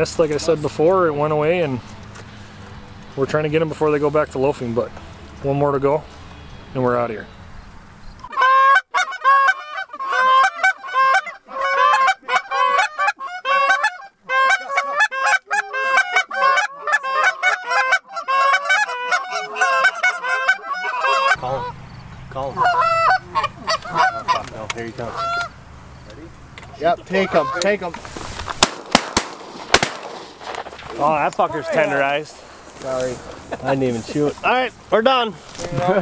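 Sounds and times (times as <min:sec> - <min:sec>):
goose call clucks and honks: 0:08.2 - 0:28.0.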